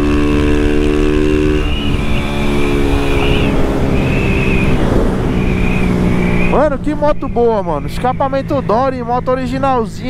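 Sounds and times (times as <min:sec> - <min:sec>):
motorcycle engine running: 0:00.0 - 0:10.0
wind on microphone: 0:01.4 - 0:07.6.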